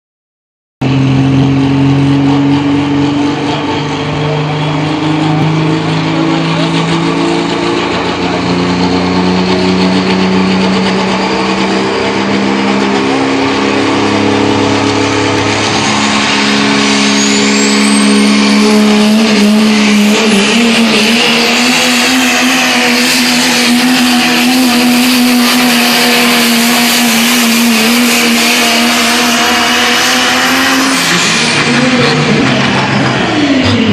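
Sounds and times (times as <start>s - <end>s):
diesel truck engine at full throttle: 0.8s - 33.9s
thin high whine: 13.0s - 20.5s.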